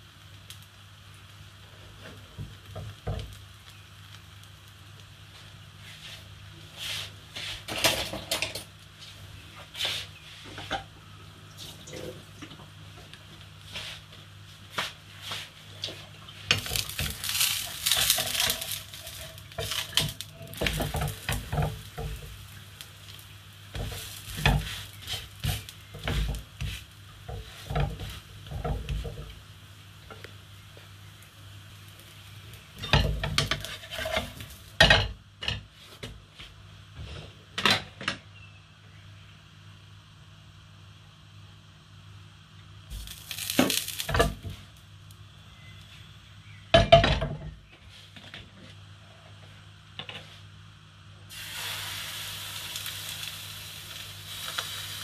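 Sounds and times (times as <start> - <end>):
pancake sizzling in a pan: 0.0 - 10.9, 13.0 - 36.1, 42.8 - 47.2, 51.3 - 55.0
spatula scraping a pan: 16.5 - 22.4, 23.7 - 29.4, 32.8 - 34.7.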